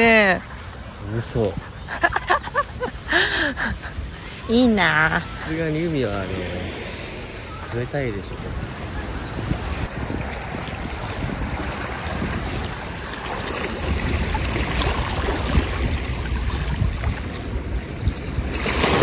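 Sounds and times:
wind on microphone: 0.0s - 19.0s
waves lapping over rocks: 3.9s - 19.0s.

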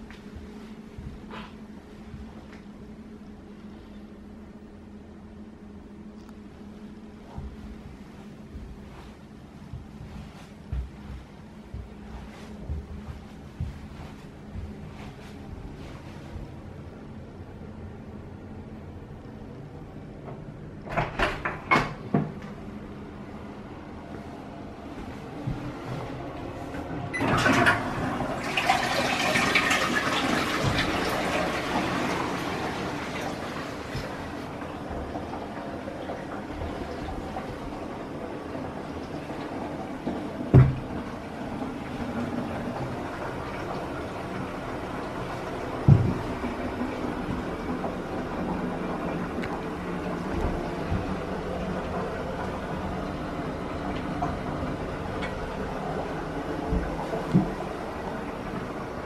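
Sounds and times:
soft low thumps: 0.0s - 3.1s, 6.9s - 16.8s, 45.8s - 46.6s
steady low hum: 0.0s - 59.0s
toilet flushing: 24.7s - 59.0s
water running as bowl refills: 27.2s - 59.0s.

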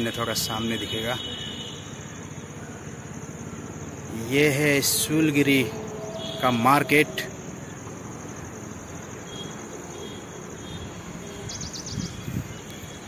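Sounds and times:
crickets trilling: 0.0s - 13.0s
open-air background hiss: 0.0s - 13.0s
high bird chirps: 11.4s - 13.0s.

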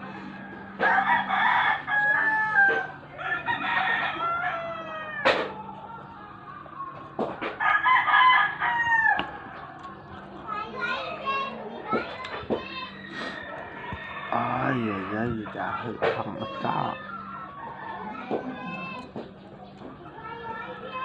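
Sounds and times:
rooster crowing: 0.0s - 5.5s, 7.6s - 9.6s, 12.8s - 15.7s, 16.9s - 19.0s.

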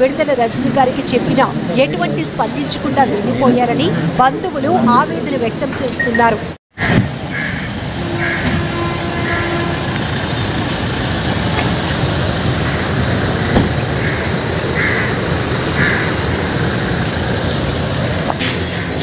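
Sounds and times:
traffic: 0.0s - 19.0s
crow cawing: 7.3s - 8.5s, 12.6s - 16.4s.

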